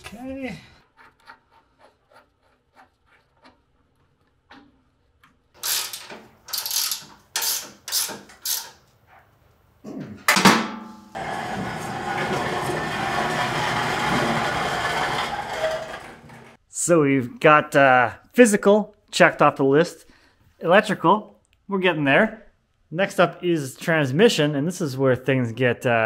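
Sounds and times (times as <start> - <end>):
ratchet wrench clicking: 5.6 - 8.8.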